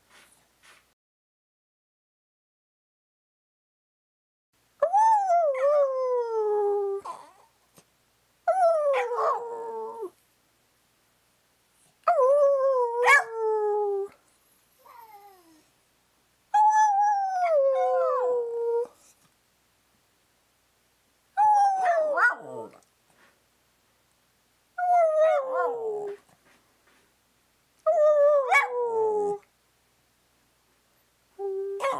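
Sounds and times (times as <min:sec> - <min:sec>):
dog howling: 0:08.5 - 0:10.1, 0:21.4 - 0:22.8, 0:24.8 - 0:26.2.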